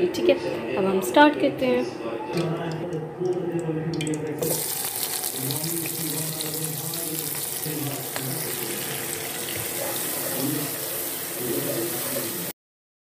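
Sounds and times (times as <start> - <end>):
onions sizzling in hot oil: 4.4 - 12.5.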